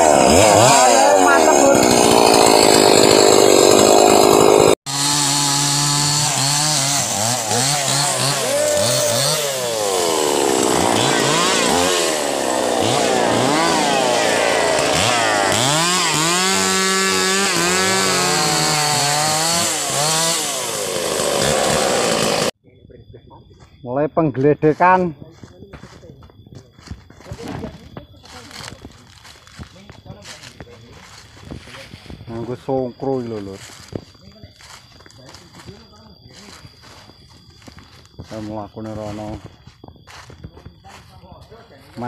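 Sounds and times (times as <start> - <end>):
chainsaw cutting wood: 0.0 - 22.6.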